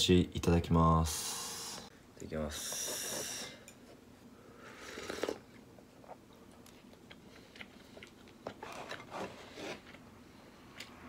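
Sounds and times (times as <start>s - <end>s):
slurping soup: 4.6s - 6.2s
person chewing: 4.8s - 10.0s.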